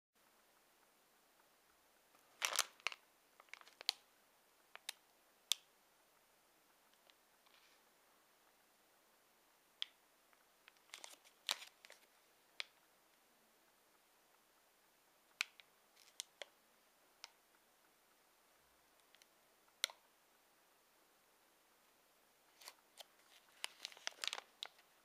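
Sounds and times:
plastic wrapper crinkling: 2.2s - 4.0s, 10.7s - 12.1s, 15.4s - 16.5s, 22.5s - 24.9s.

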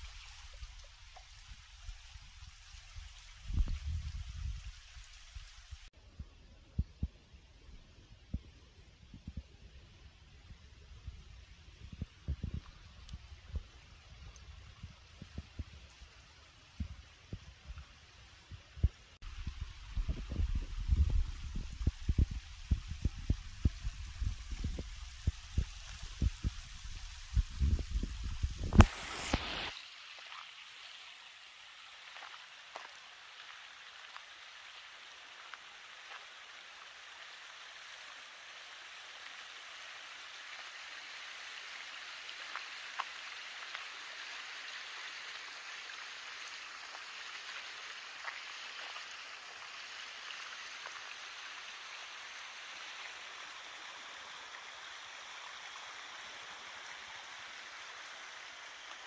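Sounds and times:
water rushing in canal: 12.0s - 59.0s.

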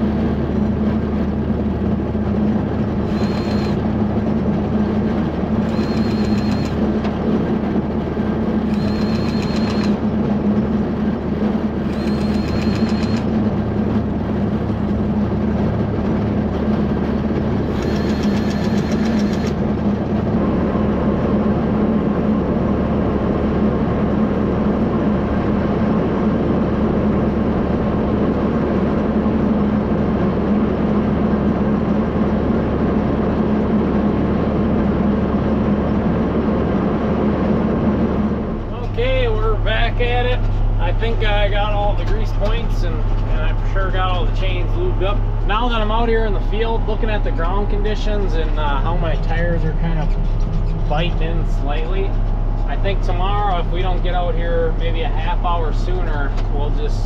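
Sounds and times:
grease gun whirring: 3.0s - 3.8s, 5.7s - 6.8s, 8.7s - 10.0s, 11.9s - 13.2s, 17.7s - 19.6s
tractor engine idling: 37.8s - 57.0s.

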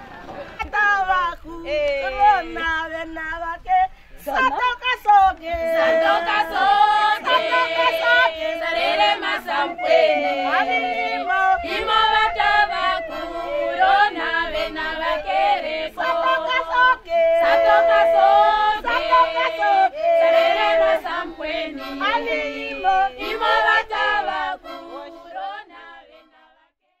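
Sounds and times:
women singing together: 0.0s - 26.8s.

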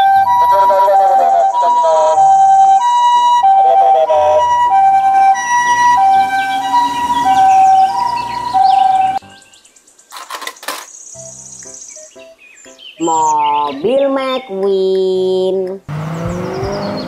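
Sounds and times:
two-tone ambulance siren: 0.0s - 9.2s.

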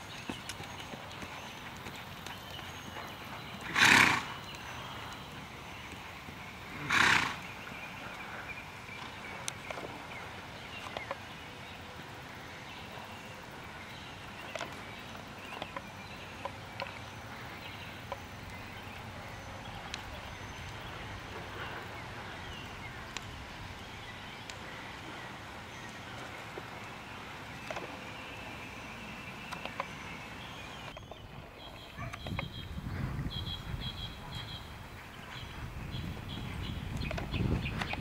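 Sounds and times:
faint hoofbeats on sand: 0.0s - 11.2s
horse snorting: 3.6s - 4.5s, 6.6s - 7.6s.

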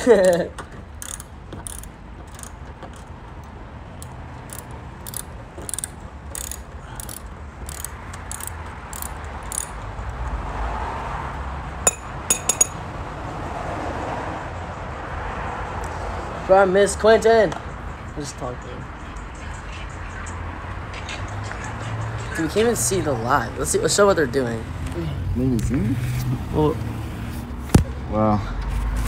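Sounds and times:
ratchet wrench clicking: 0.0s - 3.1s, 4.0s - 10.2s.

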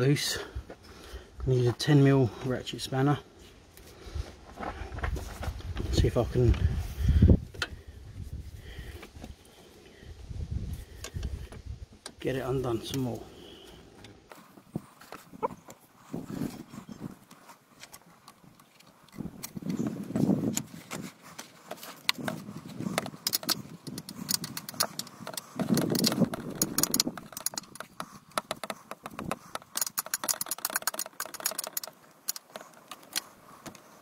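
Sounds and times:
muffled handling noise: 13.8s - 34.0s
ratchet spanner clicking: 23.2s - 33.3s.

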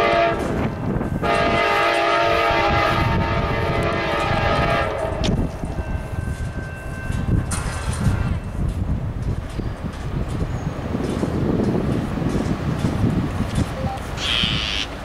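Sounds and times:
train air horn blasts: 0.0s - 5.4s, 14.2s - 14.9s
low train rumble: 0.0s - 15.0s.

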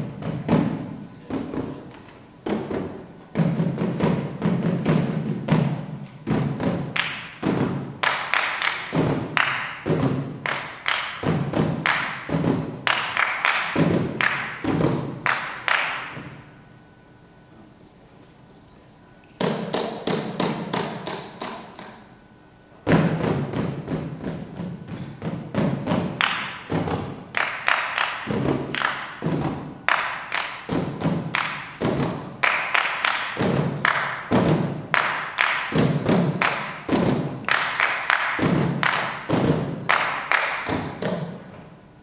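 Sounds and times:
percussion knocks with low ring: 22.8s - 27.1s.

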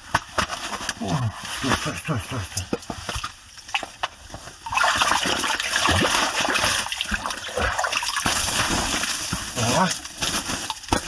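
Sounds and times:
fish splashing in water: 4.7s - 8.2s.

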